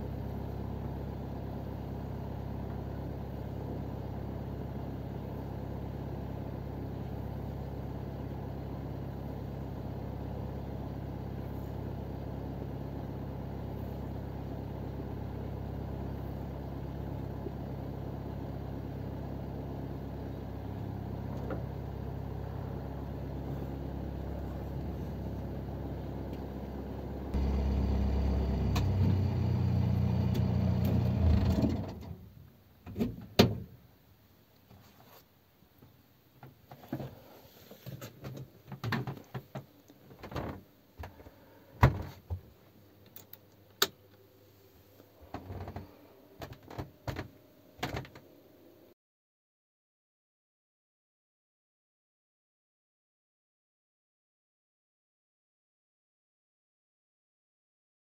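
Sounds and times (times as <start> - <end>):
boat engine idling: 21.2 - 30.4.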